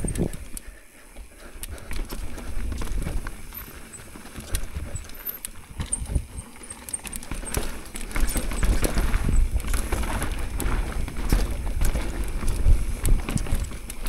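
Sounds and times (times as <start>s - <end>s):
bike clattering over roots: 0.0s - 14.0s
tyres rolling on dirt: 0.0s - 14.0s
wind on microphone: 5.7s - 6.4s, 8.5s - 13.9s.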